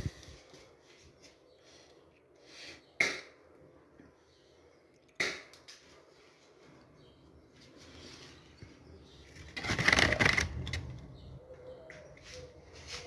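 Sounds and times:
loud rustling: 9.4 - 10.9.

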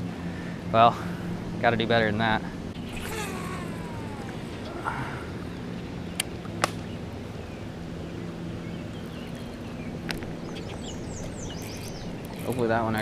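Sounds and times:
fishing reel gear hum: 2.8 - 5.4, 10.8 - 13.0
bird chirps: 2.8 - 12.4.

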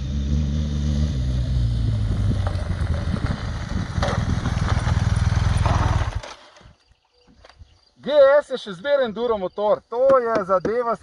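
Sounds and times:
motorcycle engine under load: 0.0 - 6.9
tyres crunching on gravel: 2.2 - 7.5.

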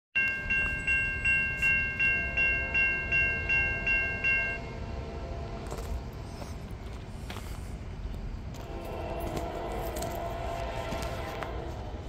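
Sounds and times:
railroad crossing bell ringing: 0.2 - 5.9.

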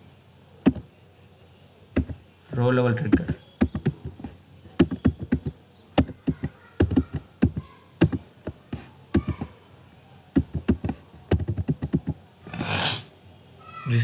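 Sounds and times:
computer keyboard typing: 2.0 - 2.2, 3.1 - 8.6, 10.4 - 12.2.

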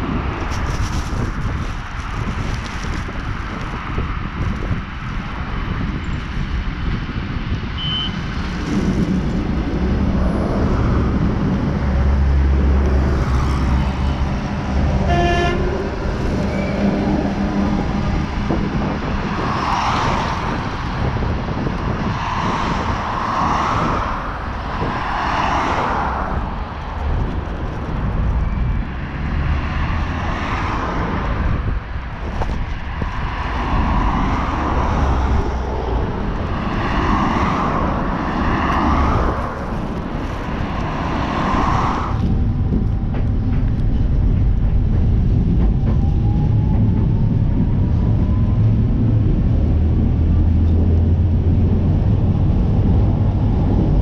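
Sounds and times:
wheel and traffic noise: 0.0 - 54.0
train rumbling past: 7.8 - 54.0
train horn blast: 14.9 - 16.0.

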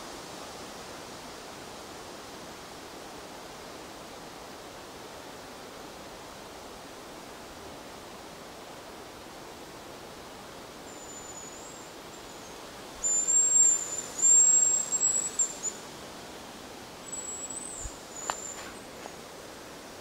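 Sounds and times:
high thin bird whistles: 10.9 - 15.8, 17.0 - 18.8
light click: 18.2 - 18.7.

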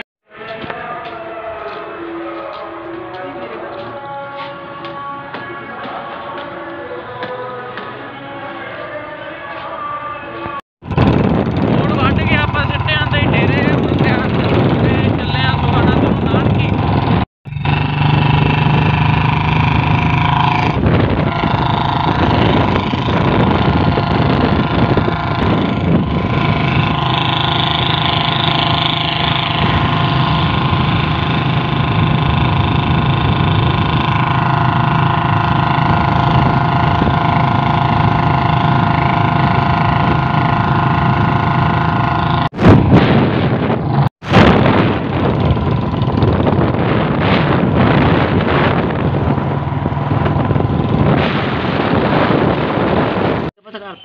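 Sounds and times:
wind noise on microphone: 10.4 - 54.0
motorcycle engine cruising: 10.8 - 54.0.

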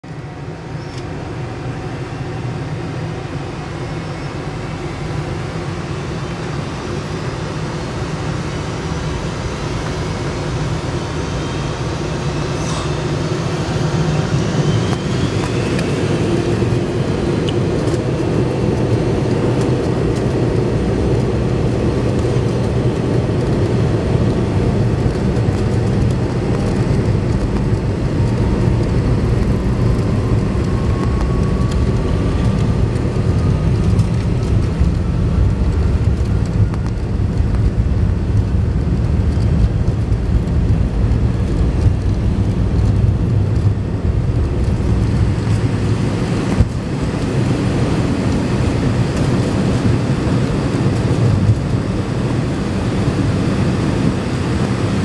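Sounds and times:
faint rising whine: 0.0 - 18.2
airliner engines humming: 0.0 - 55.0.

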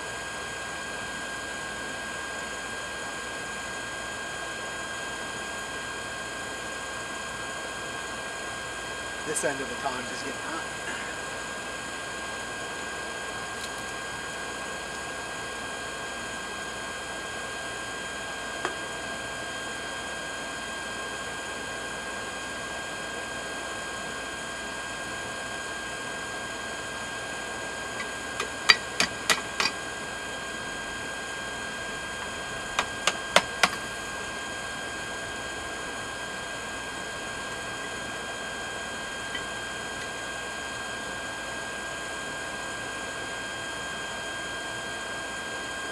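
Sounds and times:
forge air blower humming: 0.0 - 45.9.

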